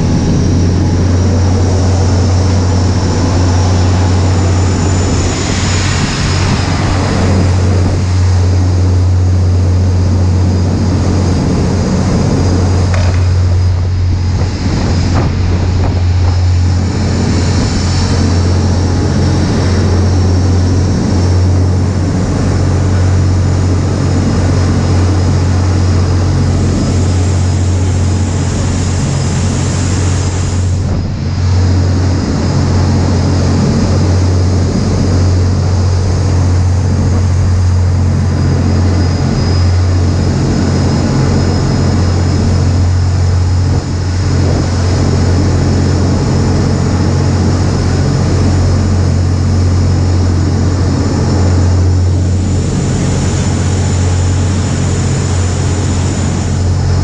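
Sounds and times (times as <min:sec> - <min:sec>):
boat engine drone: 0:00.0 - 0:57.0
churning wake rushing: 0:00.0 - 0:57.0.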